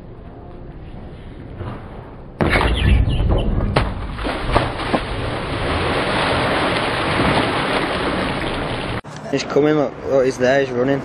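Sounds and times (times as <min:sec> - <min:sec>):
knocks against hull: 0:03.3 - 0:08.6
choppy water: 0:03.8 - 0:09.0
person splashing into water: 0:03.8 - 0:09.0.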